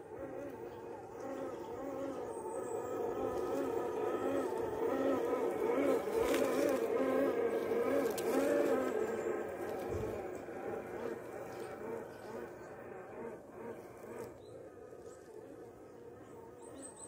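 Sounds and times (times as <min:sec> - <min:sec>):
electric motor and gears whining: 0:00.0 - 0:17.0.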